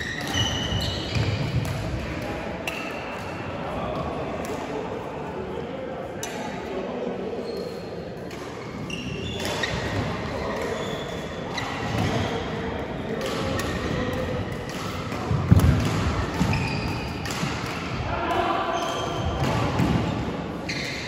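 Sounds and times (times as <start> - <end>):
shoe squeaks: 0.0 - 1.6, 8.6 - 11.8, 16.4 - 17.2, 20.7 - 21.0.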